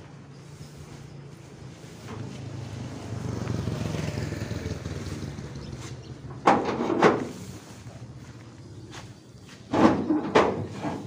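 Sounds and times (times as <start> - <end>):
vehicle engine passing: 1.4 - 6.4
thumps in metal truck bed: 6.4 - 7.4, 9.7 - 11.0.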